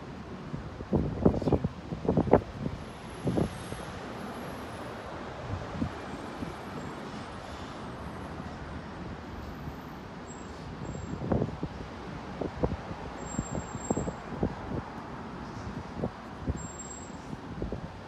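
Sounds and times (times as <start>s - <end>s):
outdoor background noise: 0.0s - 18.0s
wind buffeting microphone: 0.5s - 3.6s, 10.8s - 16.7s.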